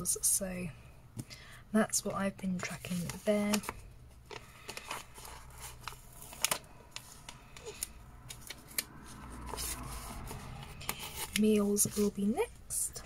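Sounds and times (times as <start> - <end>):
paper rustling: 2.6 - 12.3.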